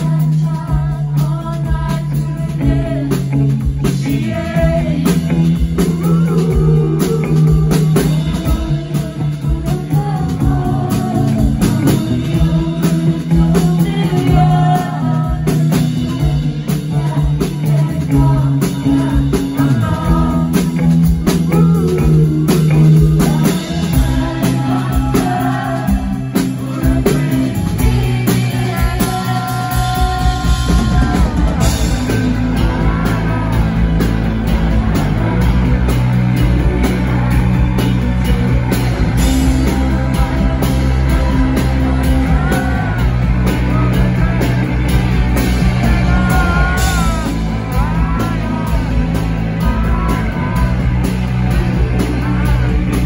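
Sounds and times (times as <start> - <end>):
live rock band playing: 0.0 - 53.0
woman singing lead: 0.0 - 53.0.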